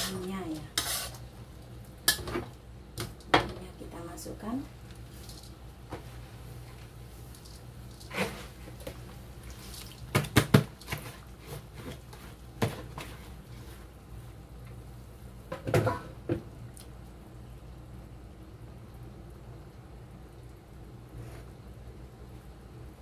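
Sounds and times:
metal spatula scraping a wok: 0:00.0 - 0:01.2, 0:08.0 - 0:08.6.

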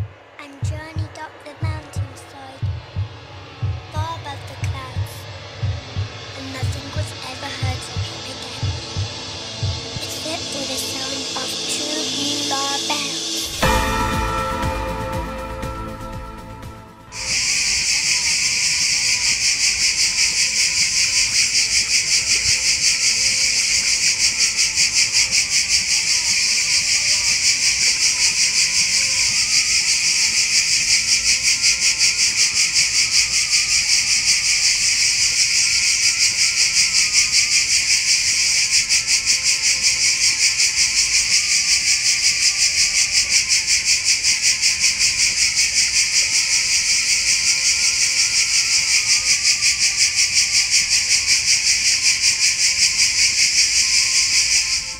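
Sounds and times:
cicadas buzzing: 0:00.0 - 0:13.8, 0:17.2 - 0:54.9.

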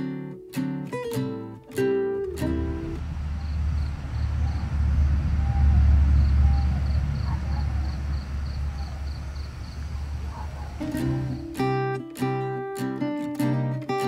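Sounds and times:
vehicle passing by: 0:02.2 - 0:11.8.

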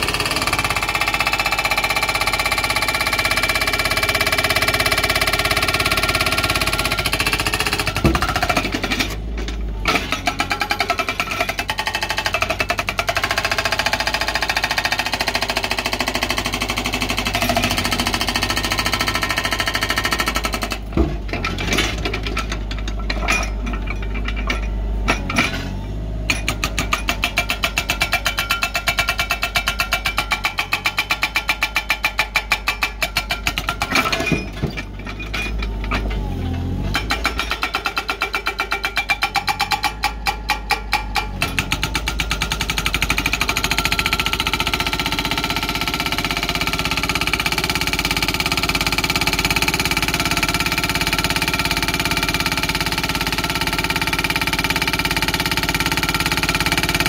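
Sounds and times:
hydraulic breaker pounding rock: 0:00.0 - 0:57.0
excavator engine rumble: 0:16.6 - 0:28.6, 0:33.5 - 0:43.8.

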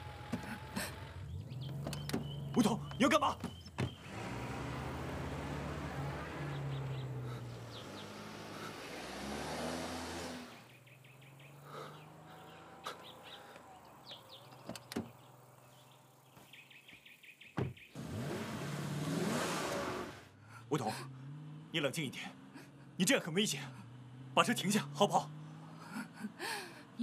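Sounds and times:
car engine revving: 0:00.0 - 0:15.9, 0:17.9 - 0:26.3
birds chirping: 0:00.2 - 0:18.0.

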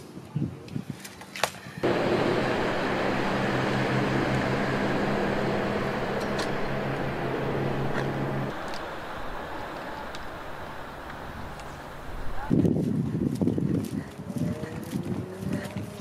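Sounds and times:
motor drone with low hum: 0:01.8 - 0:12.5.

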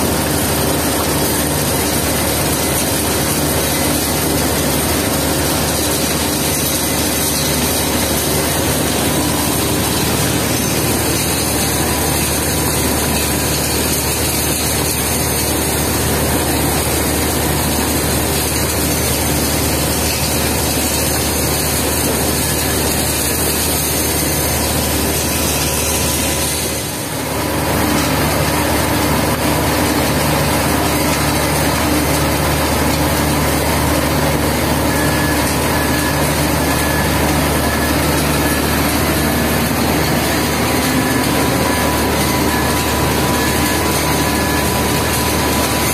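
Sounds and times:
electric motors and conveyors running: 0:00.0 - 0:45.9.

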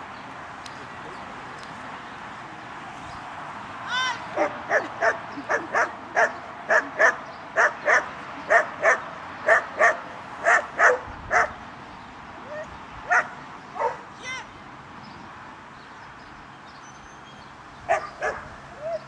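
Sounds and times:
dog barking: 0:04.4 - 0:11.5, 0:13.1 - 0:14.0, 0:17.9 - 0:18.5.

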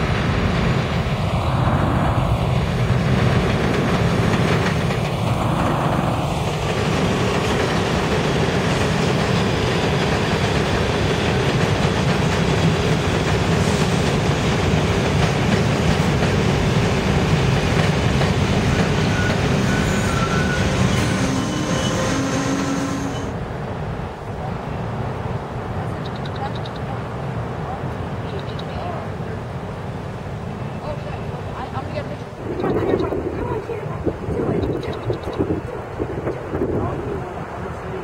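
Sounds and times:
subway train wheels rumbling: 0:00.0 - 0:38.0
faint wheel squeals: 0:19.0 - 0:23.3.

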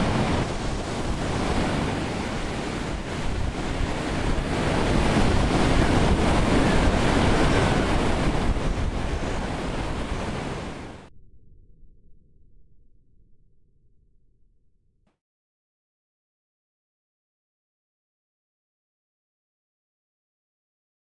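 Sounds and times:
storm wind rushing: 0:00.0 - 0:11.1.

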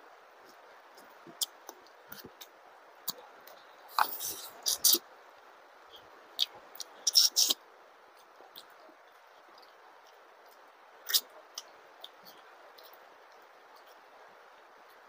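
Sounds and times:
wet mouth chewing clicks: 0:11.1 - 0:12.2.

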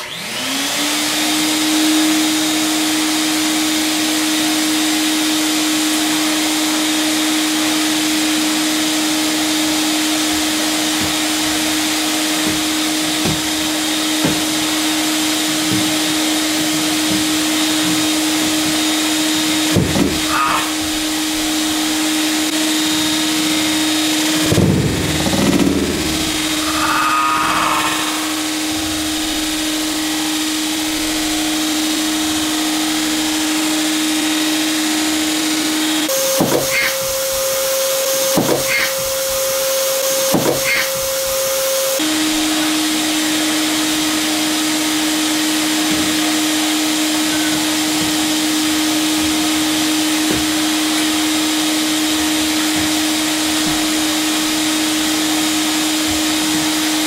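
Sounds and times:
vacuum cleaner running: 0:00.0 - 0:57.0
short knocks: 0:10.2 - 0:20.7.

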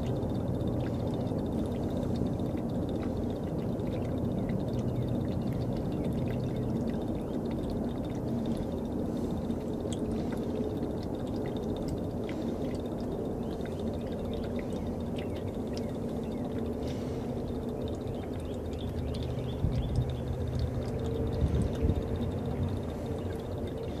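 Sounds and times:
fuel trickling into jug: 0:00.0 - 0:24.0
steady low hum: 0:00.0 - 0:24.0.

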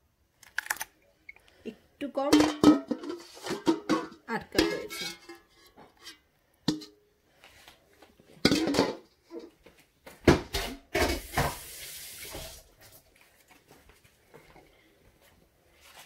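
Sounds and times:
kitchenware clattering: 0:02.3 - 0:07.0, 0:08.4 - 0:09.6, 0:10.2 - 0:12.5.

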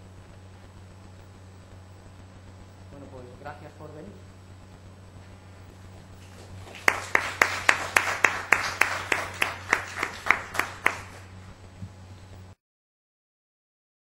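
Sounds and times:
audience applauding: 0:06.2 - 0:11.3
loud evenly spaced claps: 0:06.2 - 0:11.3.

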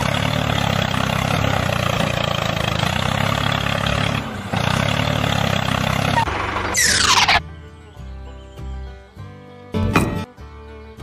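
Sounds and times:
tractor engine running: 0:00.0 - 0:07.4.

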